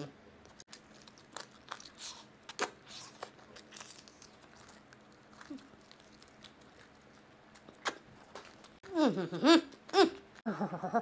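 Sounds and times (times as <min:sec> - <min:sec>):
quiet chewing: 0:00.4 - 0:10.4
crunching fried chicken: 0:00.5 - 0:08.9.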